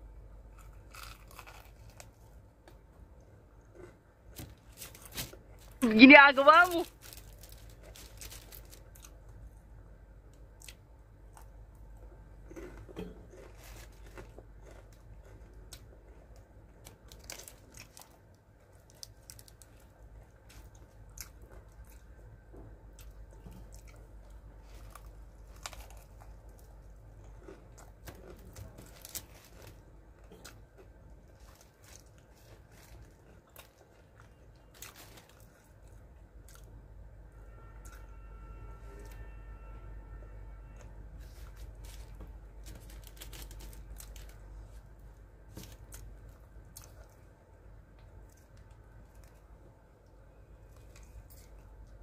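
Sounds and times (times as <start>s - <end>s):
crunching and chewing fried chicken: 0.0s - 5.8s, 6.4s - 38.1s, 40.1s - 52.0s
fried chicken being torn apart: 0.6s - 2.1s.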